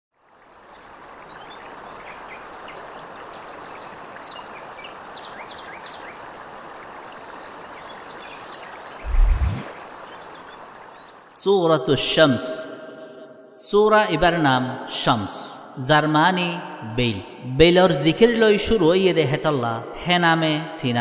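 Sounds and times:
running water: 0.2s - 11.3s
deep boom: 9.1s - 9.7s.

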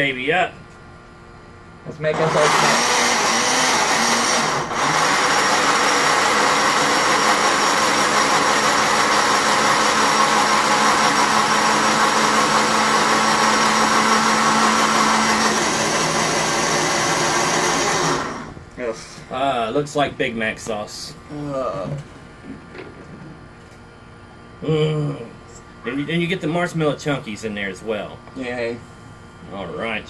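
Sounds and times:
blender motor running: 2.1s - 18.6s.

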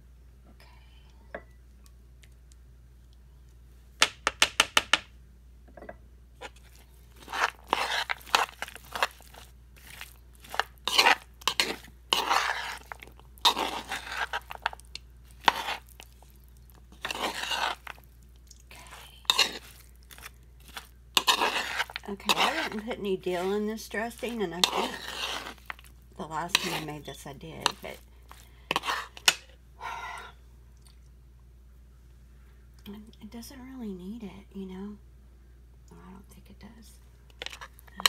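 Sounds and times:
wet stirring in a bowl: 6.4s - 29.5s.

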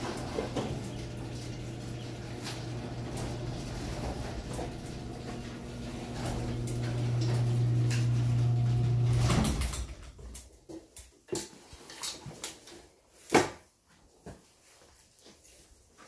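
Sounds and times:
garage door opener motor humming: 0.0s - 10.3s.

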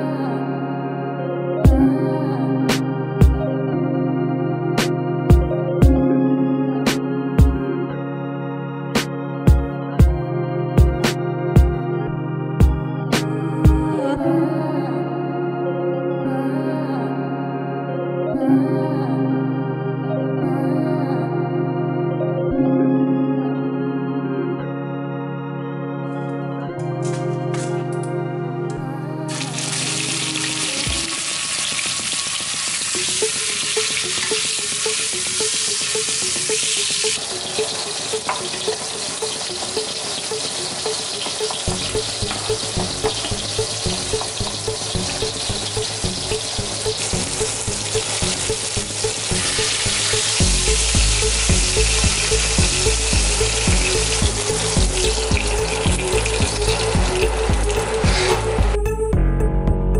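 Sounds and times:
background music with steady beat: 0.0s - 19.3s, 20.1s - 59.9s
meat sizzling in hot oil: 29.3s - 58.7s.

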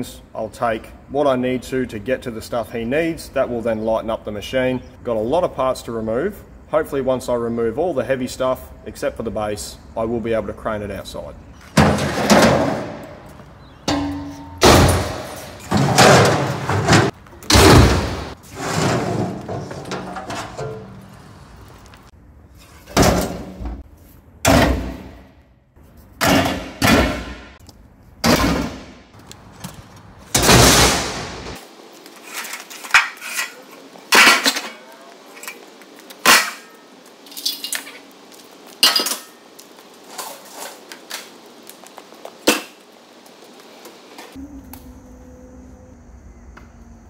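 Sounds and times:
sheet metal crashing into skip: 11.8s - 13.2s, 13.9s - 21.0s, 30.3s - 31.6s, 32.3s - 34.8s, 36.2s - 36.8s.

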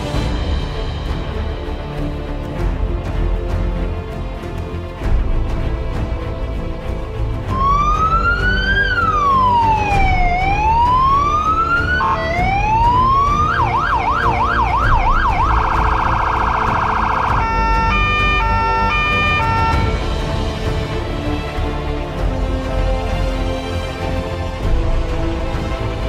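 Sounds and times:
electronic siren cycling tones: 7.6s - 19.8s.

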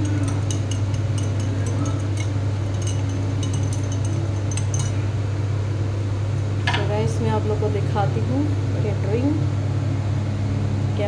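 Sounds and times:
spoon and ice clinking in glass: 0.0s - 5.0s
steady low hum: 0.0s - 11.0s.

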